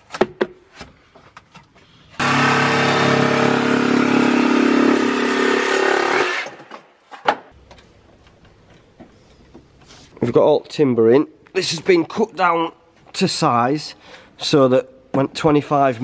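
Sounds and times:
machine motor running: 0:02.2 - 0:06.2.

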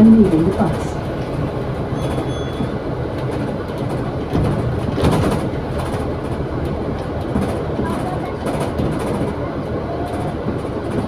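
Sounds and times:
bus engine drone: 0:00.0 - 0:11.0
rattles and knocks: 0:02.0 - 0:09.4.

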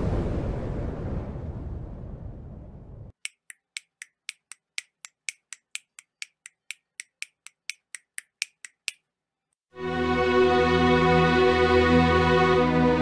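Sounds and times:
fast sharp ticking clicks: 0:03.2 - 0:09.0.

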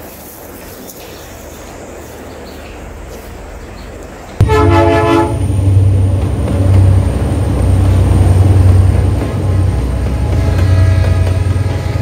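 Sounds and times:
locomotive engine running: 0:02.9 - 0:12.0
locomotive horn blast: 0:04.4 - 0:12.0.

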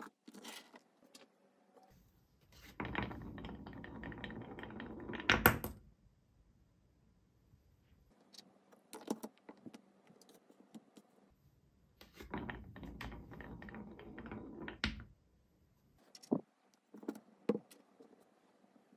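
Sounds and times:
marble rolling on wooden track: 0:02.5 - 0:05.8, 0:12.0 - 0:15.2.

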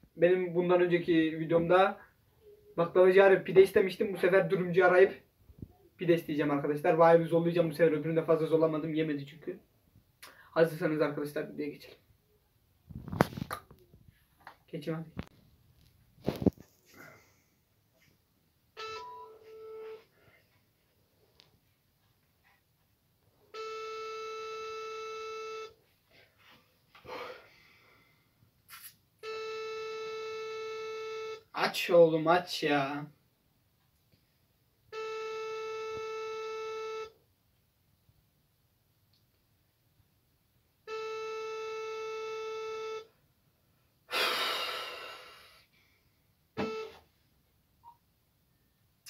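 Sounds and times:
telephone ringback beep: 0:18.8 - 0:20.0, 0:23.6 - 0:25.8, 0:34.9 - 0:37.2, 0:40.9 - 0:43.1, 0:46.6 - 0:47.0
person sighing: 0:27.0 - 0:27.8, 0:44.1 - 0:45.7.

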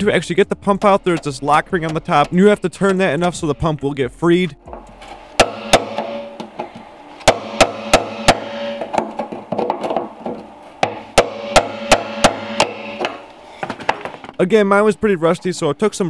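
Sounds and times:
hammer striking metal punch: 0:00.6 - 0:03.6, 0:04.7 - 0:14.2.

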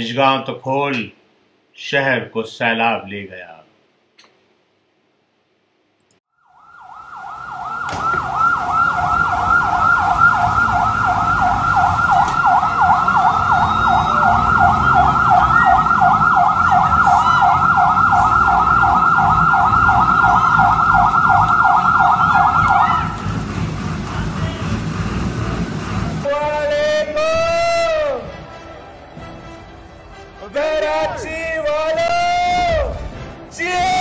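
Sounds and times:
fire truck siren warbling: 0:06.3 - 0:29.0.

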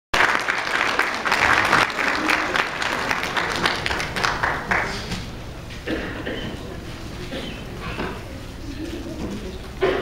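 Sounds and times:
congregation applauding: 0:00.1 - 0:05.4.

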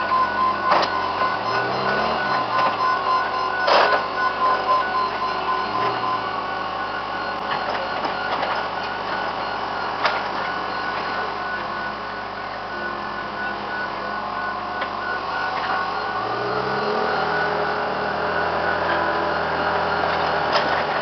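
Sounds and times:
heavy machinery whining: 0:00.0 - 0:21.0.

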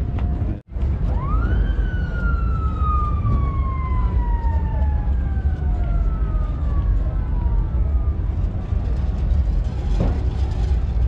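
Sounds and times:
siren winding up and down: 0:00.0 - 0:07.9
low rumble: 0:00.0 - 0:11.0.

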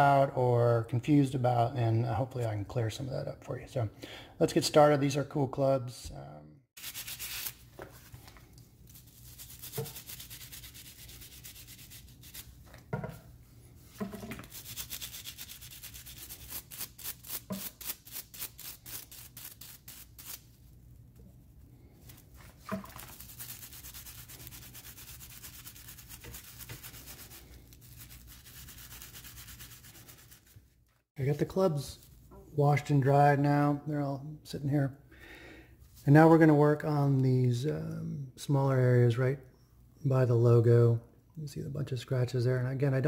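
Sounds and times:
brush scrubbing in soapy water: 0:08.9 - 0:12.6, 0:14.4 - 0:20.4, 0:22.0 - 0:30.6.

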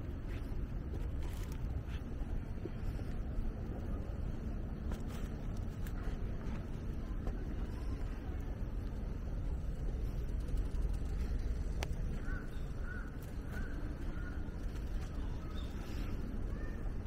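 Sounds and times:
steady low rumble: 0:00.0 - 0:17.0
crow cawing: 0:12.2 - 0:14.5.

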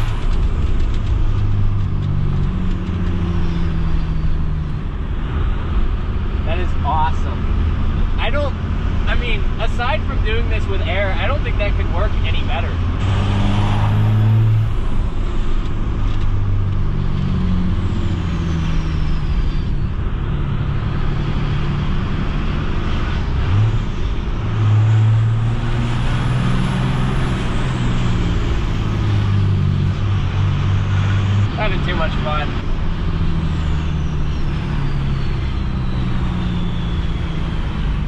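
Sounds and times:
diesel engine running: 0:00.0 - 0:38.0
faint high whistle: 0:34.2 - 0:37.8.

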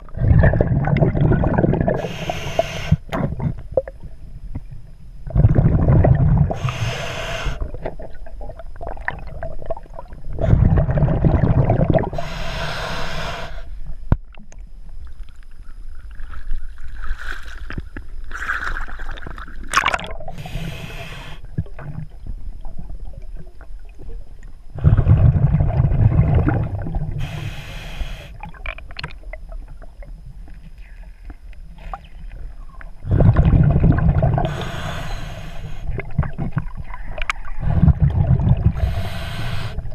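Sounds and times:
exhaled bubbles rumbling: 0:00.0 - 0:12.4, 0:16.0 - 0:27.7, 0:31.7 - 0:39.9
water sounds: 0:00.0 - 0:39.9
hissing regulator breath: 0:02.0 - 0:03.0, 0:06.5 - 0:07.6, 0:12.1 - 0:13.8, 0:20.3 - 0:21.5, 0:27.2 - 0:28.4, 0:34.4 - 0:36.0, 0:38.8 - 0:39.9.

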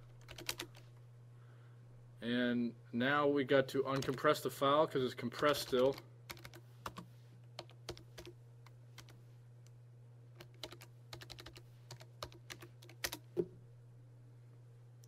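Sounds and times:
keyboard keys clicking: 0:00.1 - 0:00.8, 0:05.7 - 0:07.0, 0:10.4 - 0:13.3.

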